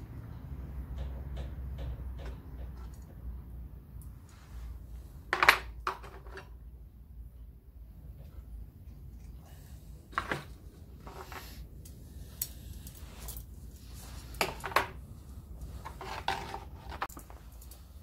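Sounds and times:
low steady hum: 0:00.0 - 0:18.0.

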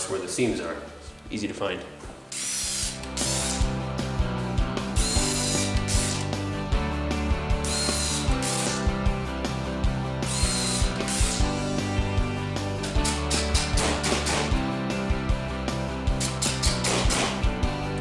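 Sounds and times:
background music: 0:00.0 - 0:18.0
cordless drill driving into wood: 0:10.3 - 0:11.4, 0:12.8 - 0:14.5, 0:16.2 - 0:17.4.

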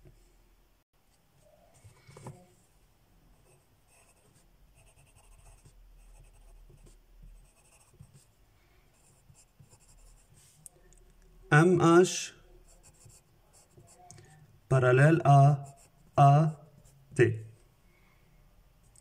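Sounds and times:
pencil scratching on paper: 0:03.4 - 0:08.3, 0:08.9 - 0:10.5, 0:12.6 - 0:14.1, 0:15.5 - 0:16.0.

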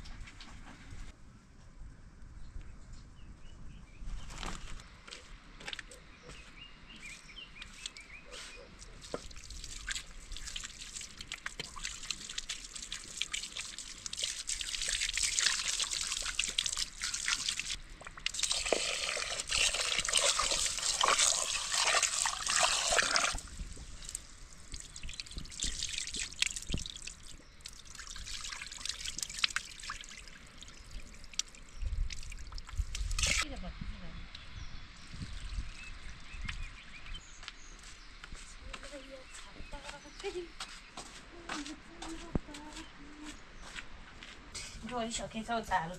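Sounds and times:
water trickling and splashing: 0:07.6 - 0:33.5, 0:34.9 - 0:38.1
water pouring: 0:09.0 - 0:33.4.

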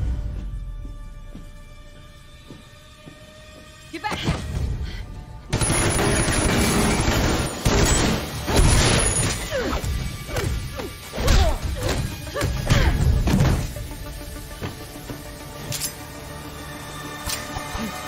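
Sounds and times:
hissing crackling sparks: 0:05.6 - 0:16.5.

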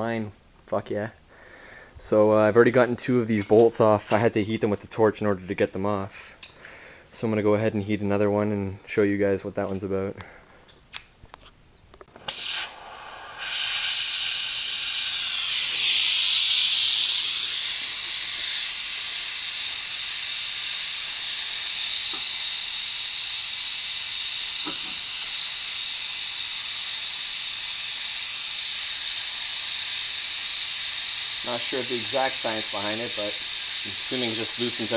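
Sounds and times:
gas torch flame hissing: 0:12.0 - 0:34.9.

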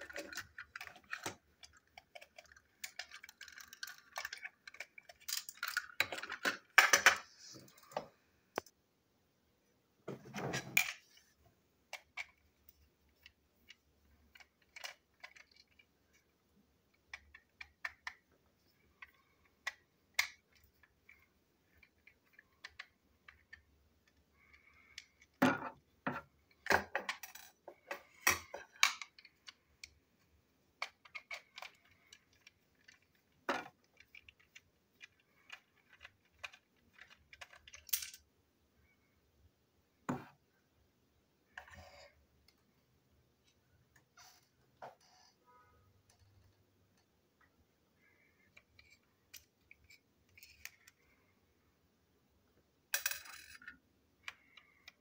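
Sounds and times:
plastic toy parts clicking: 0:00.0 - 0:07.2, 0:11.9 - 0:30.0, 0:30.8 - 0:38.3, 0:48.0 - 0:51.1, 0:52.9 - 0:55.0.

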